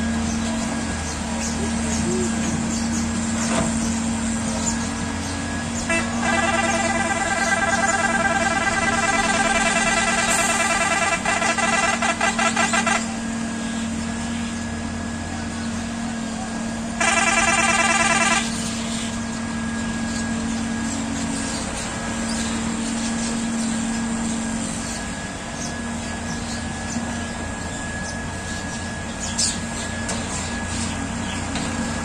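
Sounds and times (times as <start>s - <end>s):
diesel engines running: 0.0s - 32.0s
loud high-pitched sound: 5.9s - 13.4s, 17.0s - 18.9s.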